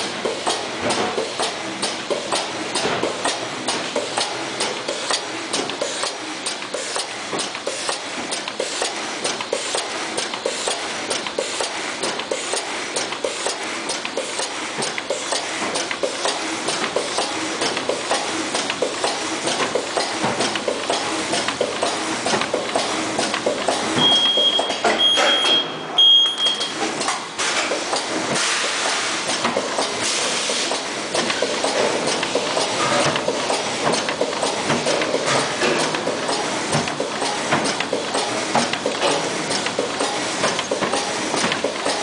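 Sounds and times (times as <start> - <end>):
bag making machine clacking: 0.0 - 25.6, 26.5 - 42.0.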